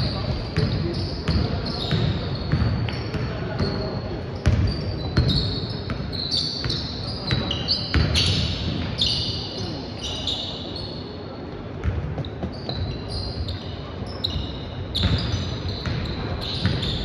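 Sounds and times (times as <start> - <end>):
sneakers squeaking on floor: 0.0 - 17.0
basketball bouncing: 4.4 - 6.0.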